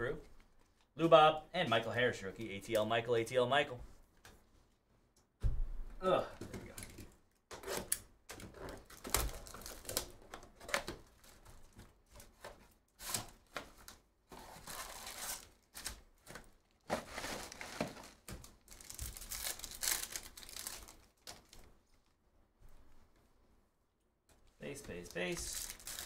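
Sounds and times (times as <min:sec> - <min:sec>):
wrapper crinkling and ripping: 0:08.8 - 0:11.4, 0:13.0 - 0:22.0, 0:24.9 - 0:26.0.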